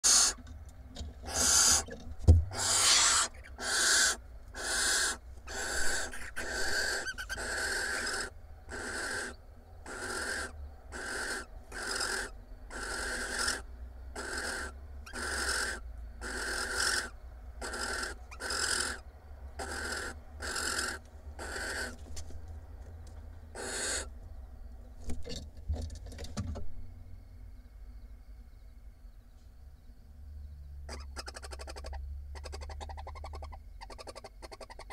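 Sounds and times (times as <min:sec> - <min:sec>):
barn owls calling harshly: 0:00.0 - 0:00.4, 0:01.2 - 0:22.0, 0:23.5 - 0:24.2, 0:30.9 - 0:34.9.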